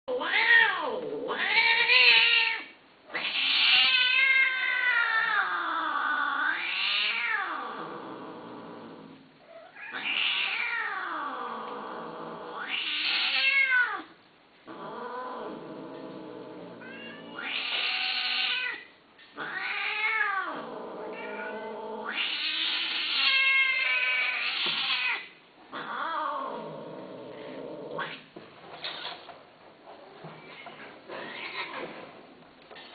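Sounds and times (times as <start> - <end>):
cat yowling: 0.1 - 7.7, 9.6 - 11.2, 16.8 - 26.6.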